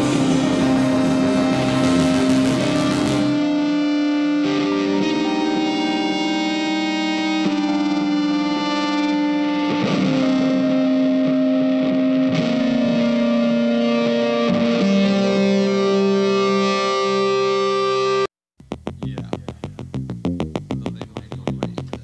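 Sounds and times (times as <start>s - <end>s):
distorted electric guitar: 0.0s - 22.0s.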